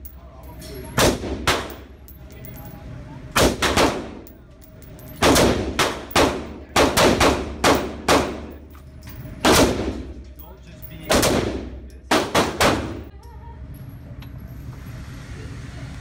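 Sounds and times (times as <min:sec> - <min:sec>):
rifle shots echoing indoors: 0:01.0 - 0:01.9, 0:03.4 - 0:04.4, 0:05.1 - 0:08.6, 0:09.4 - 0:10.2, 0:11.0 - 0:13.1.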